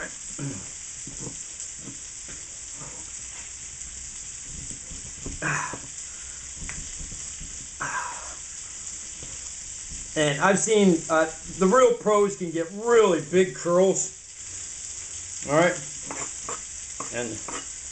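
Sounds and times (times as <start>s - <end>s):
background hiss: 0.0s - 17.9s
knife scraping chocolate: 16.0s - 17.7s.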